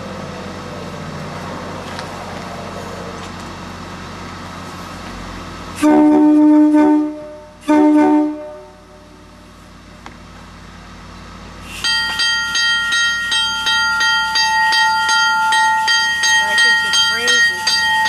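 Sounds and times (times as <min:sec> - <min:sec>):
train air horn blasts: 0:05.8 - 0:09.2.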